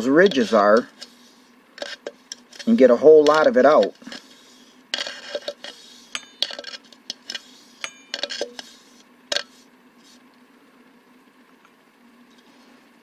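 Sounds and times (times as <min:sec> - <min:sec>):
silicone brush scraping plastic cup: 0:00.0 - 0:10.2
faint steady hum: 0:00.0 - 0:13.0.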